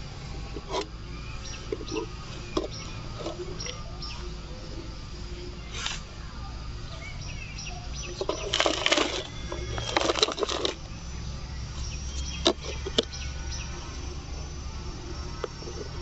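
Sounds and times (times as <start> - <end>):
soil pattering into plastic bottle: 8.2 - 10.8.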